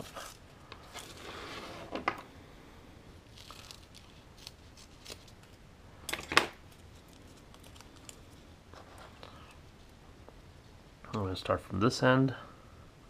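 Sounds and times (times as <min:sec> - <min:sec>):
rustling of film being handled: 0:00.0 - 0:02.1, 0:03.2 - 0:05.6, 0:06.6 - 0:10.0.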